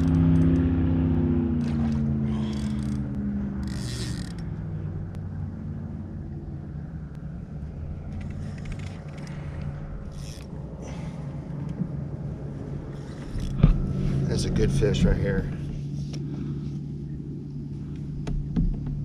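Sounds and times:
fishing reel creaking: 0.0s - 0.7s, 1.6s - 4.6s, 8.1s - 11.8s, 12.9s - 13.6s
low motor drone: 0.0s - 19.0s.

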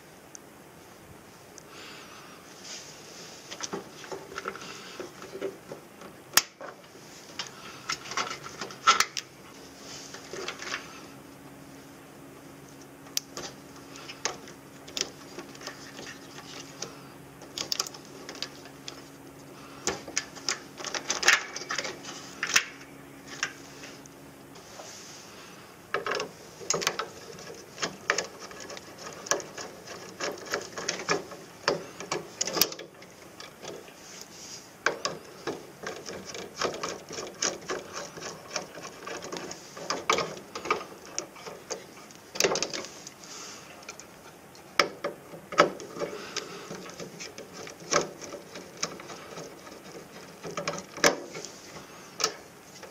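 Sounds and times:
low steady hum: 0.0s - 52.9s
hand tools clicking and snipping: 26.0s - 33.8s, 34.8s - 43.2s.

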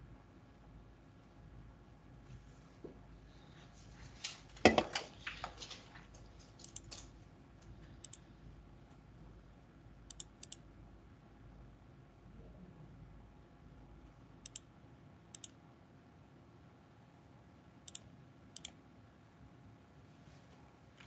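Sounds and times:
keyboard keystrokes: 6.4s - 7.2s
computer mouse clicks: 6.6s - 7.1s, 8.0s - 8.2s, 10.1s - 10.6s, 14.4s - 14.7s, 15.3s - 15.6s, 17.8s - 18.8s.

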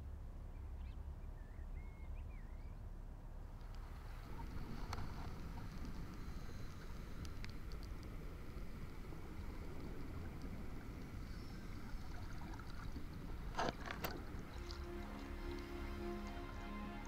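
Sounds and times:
underwater rumble of water: 0.0s - 17.0s
soft sustained music notes: 8.8s - 17.0s.

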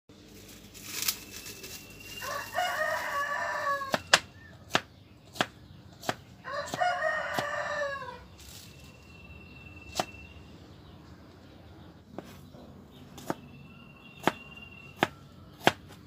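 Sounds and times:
rooster crowing: 2.0s - 4.3s, 6.4s - 8.3s, 13.5s - 15.6s
knife chopping on cutting board: 3.9s - 7.5s, 14.2s - 14.4s, 15.0s - 16.0s.

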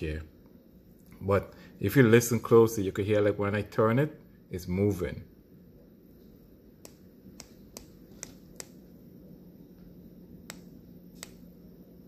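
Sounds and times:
faint sharp clicks: 10.5s - 11.4s.

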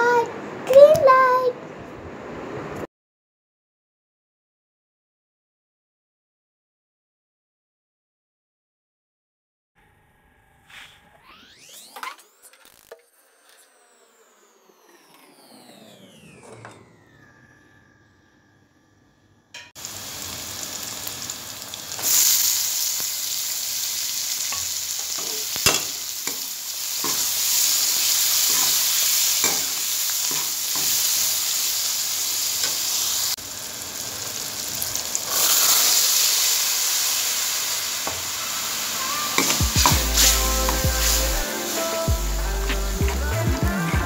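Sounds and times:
vegetables sizzling in oil: 19.8s - 43.0s.

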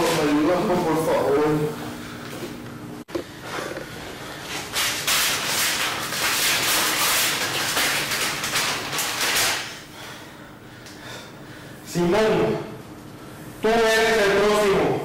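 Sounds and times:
paper rustling and crinkling: 4.5s - 9.7s.

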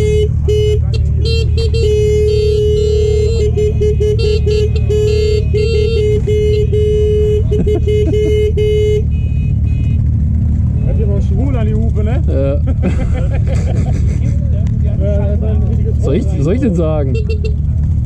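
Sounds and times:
loud horn blast and toots: 0.0s - 10.1s, 17.0s - 17.7s
car horns honking: 0.0s - 12.2s, 15.9s - 17.7s
low engine rumble: 0.0s - 18.0s.

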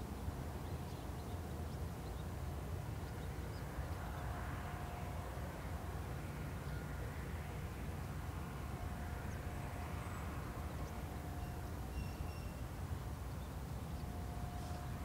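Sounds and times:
train rumbling: 13.8s - 15.0s.

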